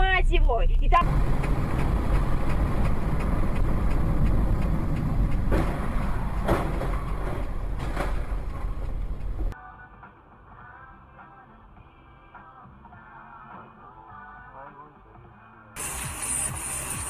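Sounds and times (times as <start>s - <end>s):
car road and engine rumble: 0.0s - 17.0s.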